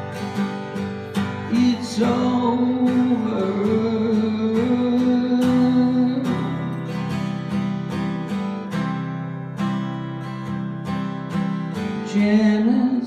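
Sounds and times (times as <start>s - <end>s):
acoustic guitar strumming: 0.0s - 13.0s
man singing: 1.4s - 7.2s, 11.9s - 13.0s.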